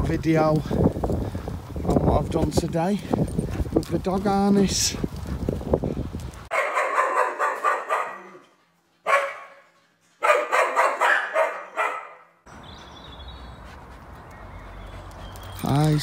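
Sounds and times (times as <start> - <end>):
wind noise: 0.0 - 6.5
dog barking: 6.5 - 8.4, 9.0 - 12.4.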